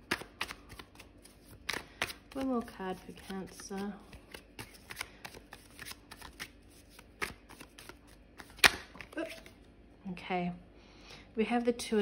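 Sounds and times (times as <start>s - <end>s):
cards being shuffled: 0.0s - 9.6s
sharp card snap: 7.2s - 9.2s.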